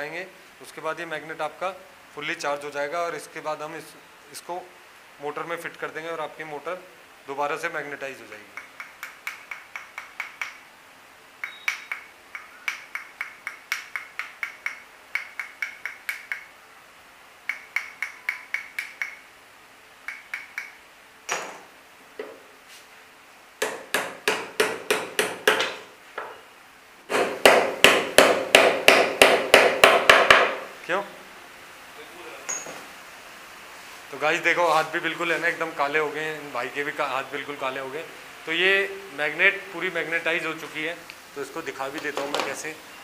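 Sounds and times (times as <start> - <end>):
hammer tapping metal: 8.5 - 10.6, 11.4 - 16.5, 17.5 - 19.2, 23.6 - 26.4, 27.1 - 30.6.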